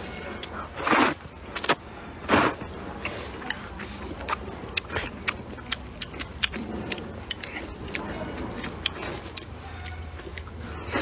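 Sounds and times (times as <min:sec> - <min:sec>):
high insect sound: 0:00.0 - 0:11.0
wet chewing with mouth clicks: 0:00.4 - 0:11.0
slurping noodles: 0:00.8 - 0:03.3.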